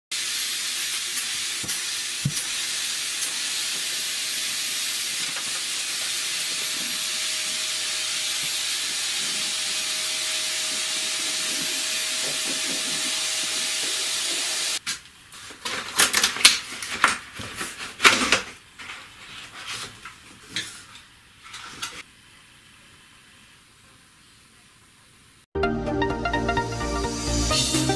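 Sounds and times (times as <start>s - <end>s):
vacuum hose suction hiss: 0.2s - 14.8s.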